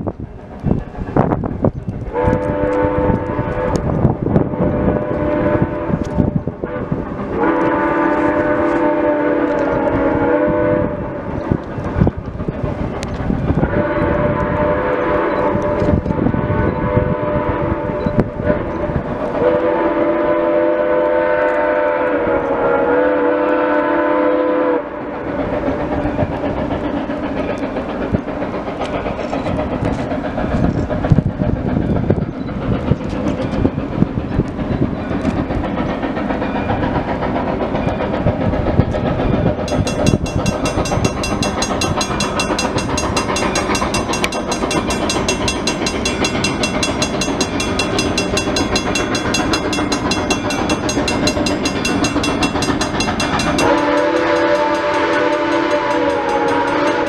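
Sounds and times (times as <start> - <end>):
steam locomotive exhaust rushing: 0.0 - 57.0
steam whistle: 2.1 - 3.9, 4.5 - 11.3, 13.6 - 18.8, 19.4 - 25.1, 53.2 - 57.0.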